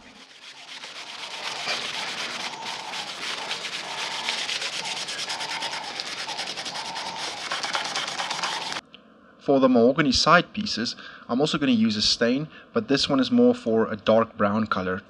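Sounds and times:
cloth rag rubbing wood: 0.0 - 8.8.

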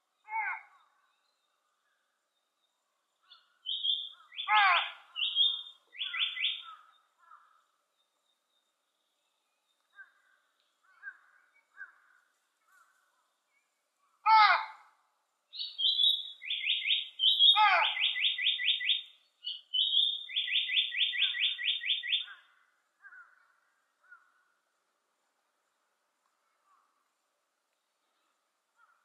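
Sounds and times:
bird singing whistled notes: 3.3 - 4.5, 5.1 - 6.8, 15.5 - 22.4.

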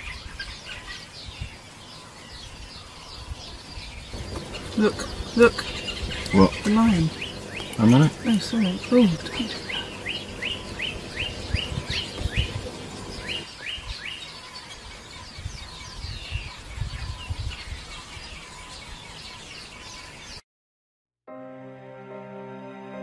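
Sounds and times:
birds chirping: 0.0 - 20.4
low rumbles: 4.1 - 13.4.

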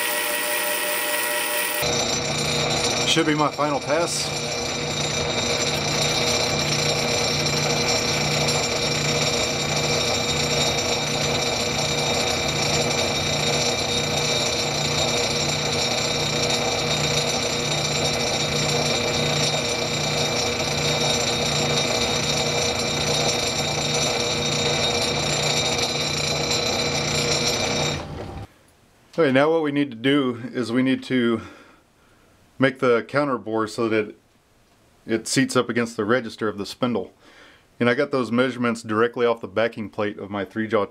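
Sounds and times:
lathe hum and whine: 0.0 - 28.5.

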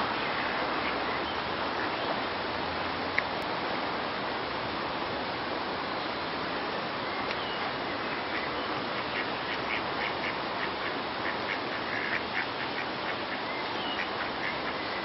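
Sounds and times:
steady background hiss: 0.0 - 15.0
ducks quacking: 8.1 - 14.8.

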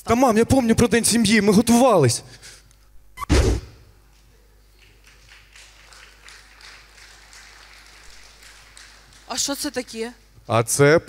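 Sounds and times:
light scattered claps: 4.8 - 9.4.

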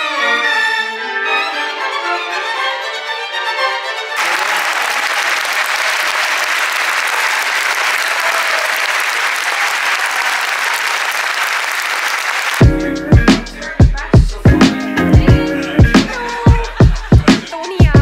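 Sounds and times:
orchestral string music: 0.0 - 4.2, 12.6 - 17.8
audience applauding: 4.2 - 12.7.

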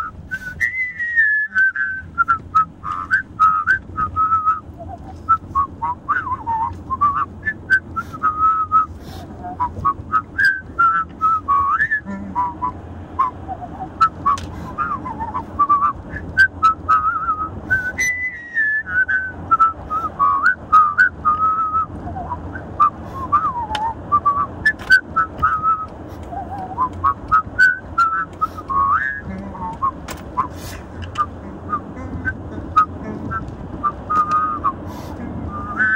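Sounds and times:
car driving rumble: 0.0 - 35.9
man whistling a melody: 0.0 - 35.9.

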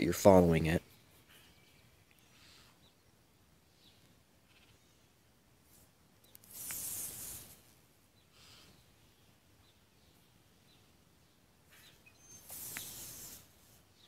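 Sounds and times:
cord swishing through knot: 5.7 - 7.8, 12.4 - 13.9.

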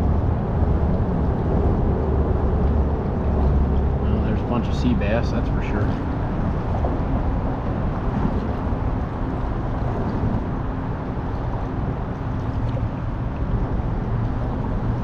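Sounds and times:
water moving around kayak: 5.9 - 15.0.

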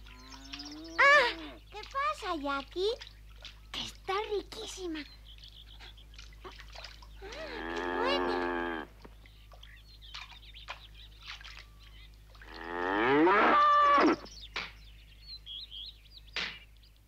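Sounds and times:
cow mooing: 0.0 - 1.5, 7.4 - 8.9, 12.4 - 14.2.

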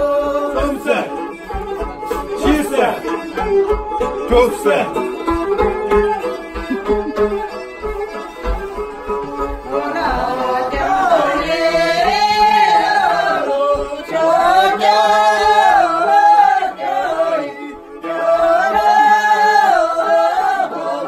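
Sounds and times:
group of people singing: 0.0 - 1.2, 9.7 - 21.0.

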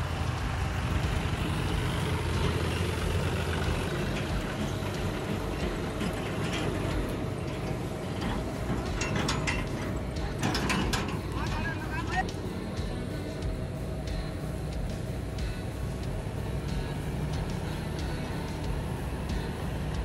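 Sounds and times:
combine harvester engine drone: 0.0 - 20.0.

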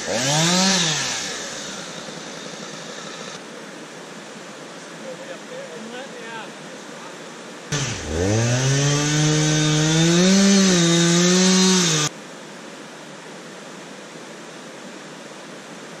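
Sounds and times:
chainsaw engine revving: 0.0 - 3.4, 7.7 - 12.1
rushing river water: 1.0 - 7.8.

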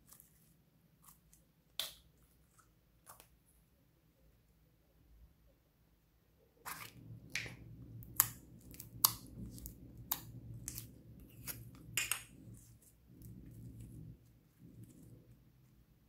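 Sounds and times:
faint low hum: 0.0 - 16.0
slime sticky clicks and pops: 7.3 - 9.2.

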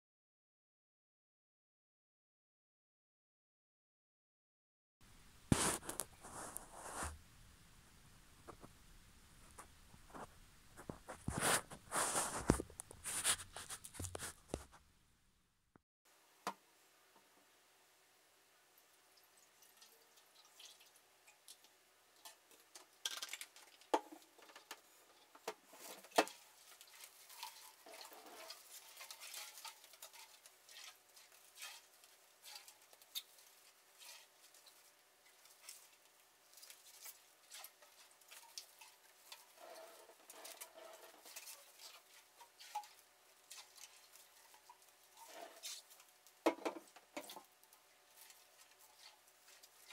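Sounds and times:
plastic wrap crinkling: 5.5 - 7.2, 9.4 - 14.8.

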